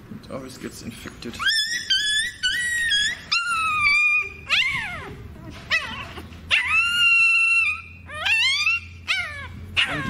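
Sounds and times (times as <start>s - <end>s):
puppy crying: 1.3s - 10.0s
puppy yelping: 1.3s - 10.0s.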